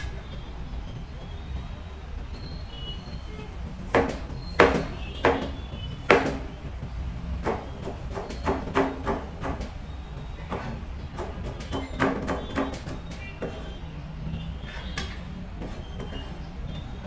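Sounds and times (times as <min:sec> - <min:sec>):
knife chopping on cutting board: 0:03.9 - 0:06.5, 0:07.4 - 0:09.7, 0:10.5 - 0:13.7.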